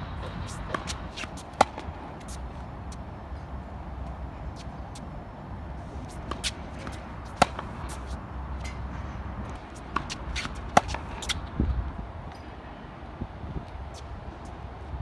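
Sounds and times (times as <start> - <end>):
low wind rumble: 0.0 - 15.0
tennis ball hit with racket: 0.2 - 2.4, 6.1 - 8.9, 9.5 - 11.5
shoes scuffing on court: 0.2 - 3.0, 5.8 - 11.5.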